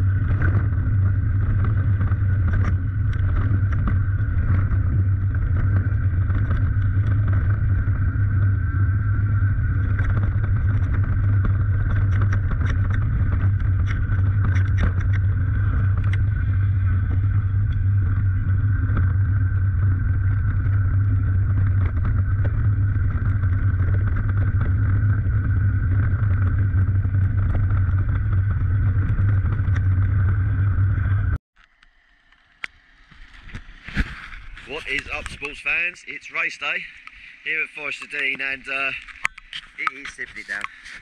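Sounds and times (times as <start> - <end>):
mountain bike rattling downhill: 0.0 - 31.4, 32.5 - 41.0
wind rush on microphone: 0.0 - 31.4.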